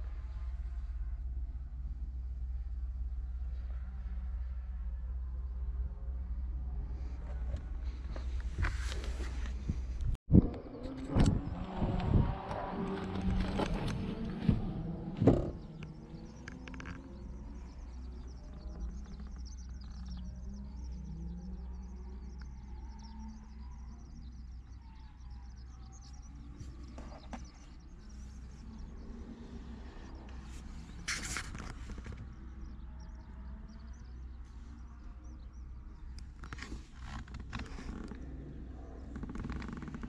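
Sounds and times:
birds chirping: 0.0 - 40.0
steady low rumble: 0.0 - 40.0
rustle: 7.1 - 9.9, 26.6 - 32.4.

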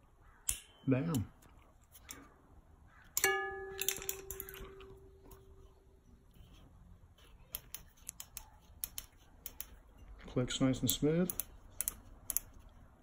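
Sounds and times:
metallic ping: 0.5 - 1.2, 3.2 - 5.3.

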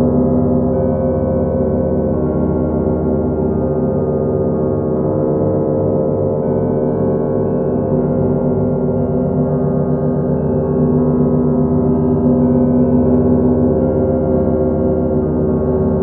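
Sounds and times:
many bells ringing: 6.4 - 16.0.

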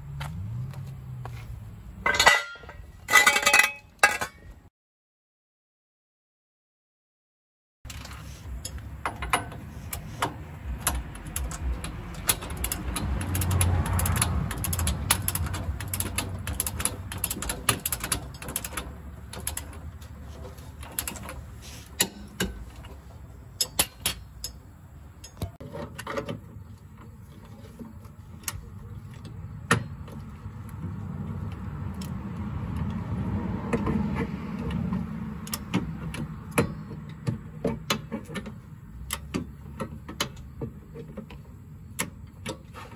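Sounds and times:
ratcheting wrench clicking: 7.9 - 19.9.

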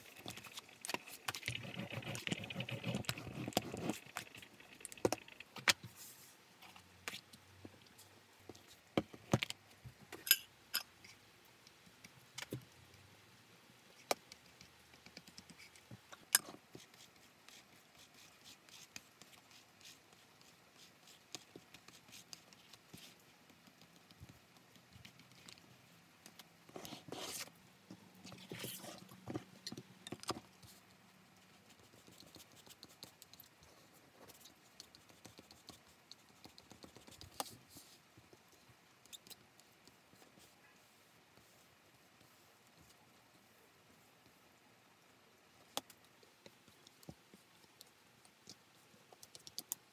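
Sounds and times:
rustling and scraping: 0.0 - 9.4.

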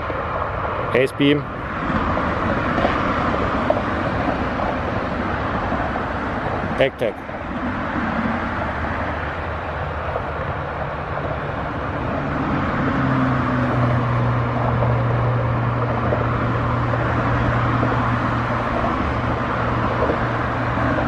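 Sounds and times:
low engine drone: 0.0 - 21.0
road traffic noise: 0.0 - 21.0.

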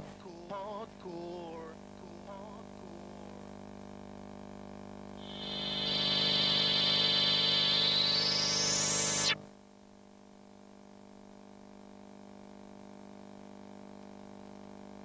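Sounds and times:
high synthesizer tone: 5.2 - 9.4
low electronic drone: 5.2 - 9.4.

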